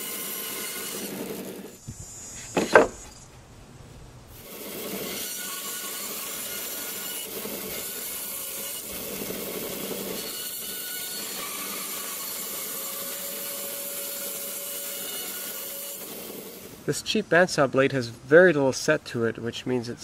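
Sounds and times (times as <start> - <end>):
bandsaw cutting wood: 0.0 - 1.8, 4.3 - 16.8.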